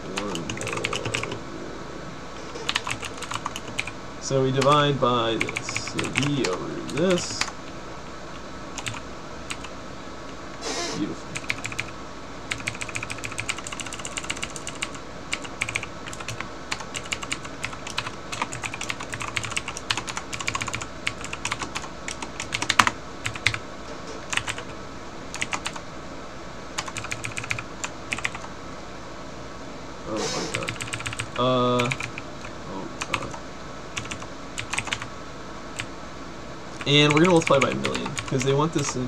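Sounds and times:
keyboard typing clicks: 0:02.7 - 0:03.9, 0:24.3 - 0:24.7.

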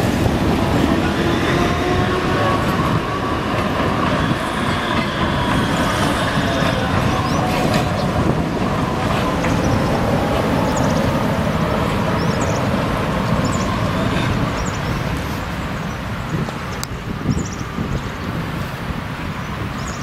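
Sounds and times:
cars passing: 0:00.0 - 0:19.9
tram moving: 0:00.0 - 0:20.0.

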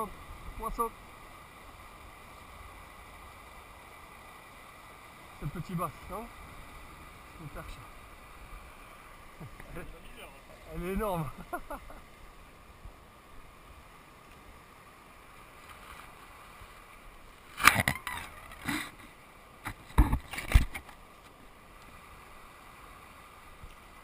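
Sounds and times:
faint steady hiss: 0:00.0 - 0:24.0
sharp knocks and rustles: 0:17.5 - 0:21.4.

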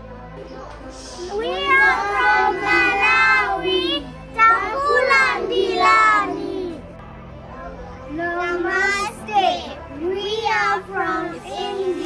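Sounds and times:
children singing: 0:01.0 - 0:06.9, 0:08.4 - 0:12.0.

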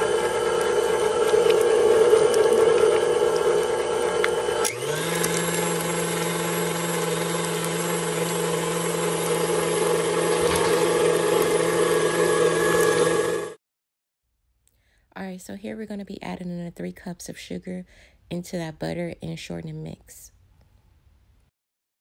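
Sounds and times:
stand mixer motor whining: 0:00.0 - 0:13.6.

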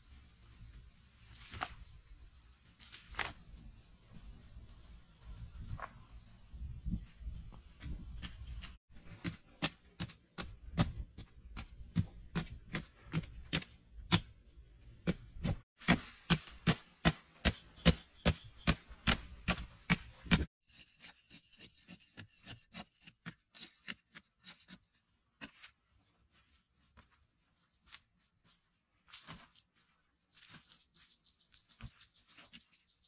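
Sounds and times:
digging pole striking dry soil: 0:07.8 - 0:14.4, 0:15.0 - 0:20.5.

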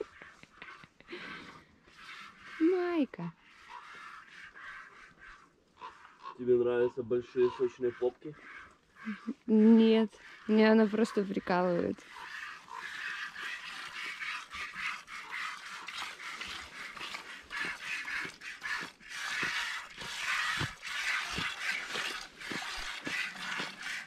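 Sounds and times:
milk squirting into a pail: 0:07.8 - 0:24.0.

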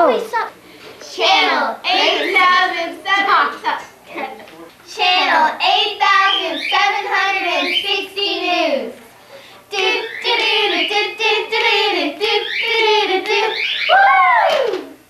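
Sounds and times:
girls singing together: 0:01.1 - 0:03.9, 0:04.9 - 0:13.9.

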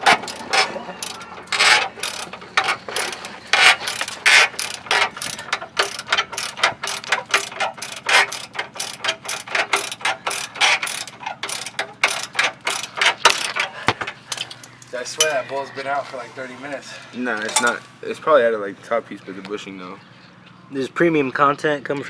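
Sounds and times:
ratchet wrench clicking: 0:00.0 - 0:13.7.

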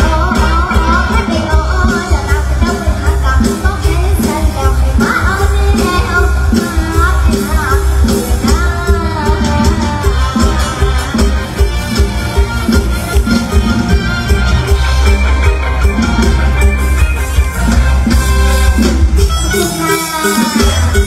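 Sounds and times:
girl singing into microphone: 0:00.0 - 0:10.3
band with heavy bass beat: 0:00.0 - 0:21.0.

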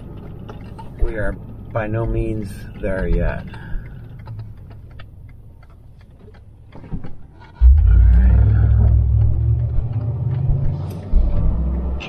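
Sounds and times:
engine rumbling under acceleration: 0:00.0 - 0:12.0
engine idling: 0:07.6 - 0:11.5.

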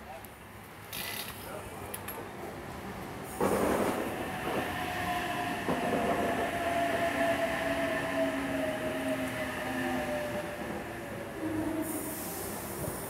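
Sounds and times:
train cars rumbling past: 0:02.7 - 0:13.0.

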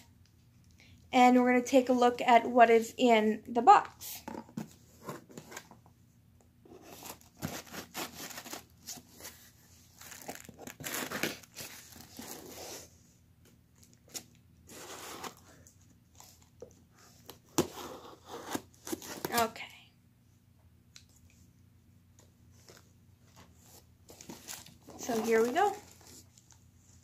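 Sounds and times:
packaging tearing and crinkling: 0:10.0 - 0:12.6.

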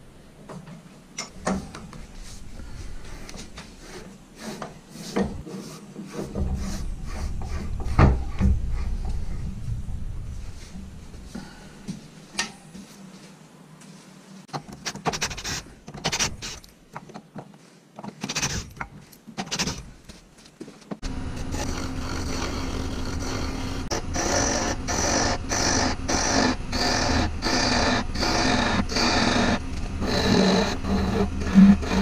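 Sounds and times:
gouge cutting spinning wood: 0:21.0 - 0:32.0
wood lathe running: 0:21.0 - 0:32.0.

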